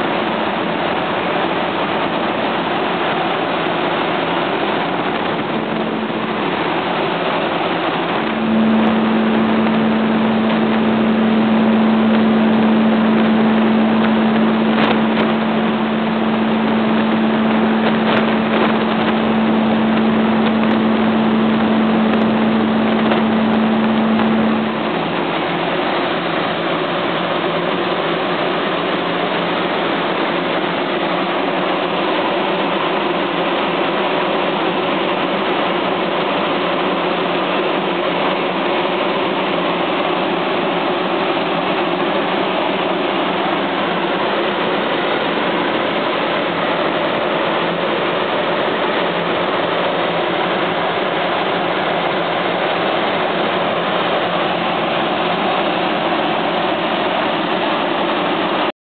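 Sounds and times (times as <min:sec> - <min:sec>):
grain dryer fan rushing: 0:00.0 - 0:58.7
low hum: 0:02.7 - 0:34.4.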